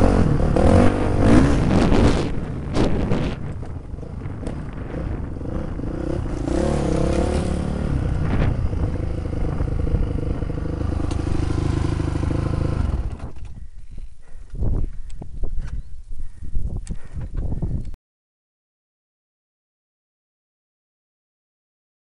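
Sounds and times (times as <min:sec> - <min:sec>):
engine running: 0:00.0 - 0:14.0.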